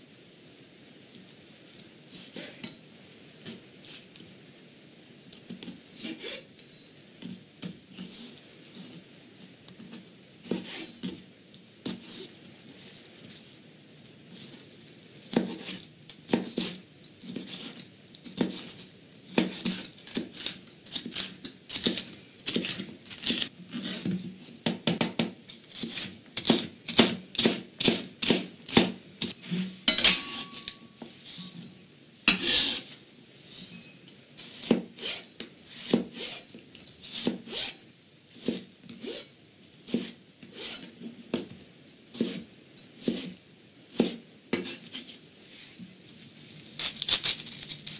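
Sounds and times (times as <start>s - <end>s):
knife chopping on plastic board: 15.3s - 15.7s, 16.3s - 16.8s, 19.3s - 22.8s, 24.7s - 29.0s, 44.0s - 44.7s.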